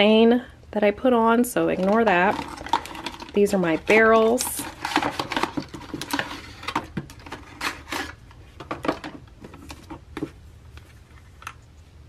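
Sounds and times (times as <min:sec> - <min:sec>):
packaging rustling: 0:01.7 - 0:10.3.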